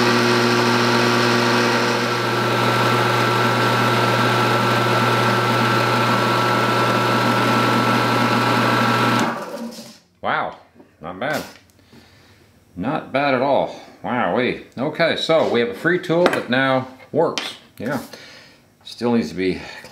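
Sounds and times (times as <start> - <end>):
bench sander running: 0.0 - 10.0.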